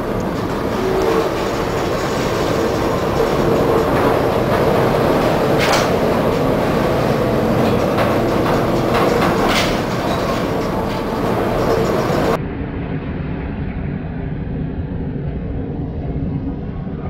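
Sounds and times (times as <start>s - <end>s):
sharp clatters: 0.0s - 12.4s
ship rumble and hum: 0.0s - 12.4s.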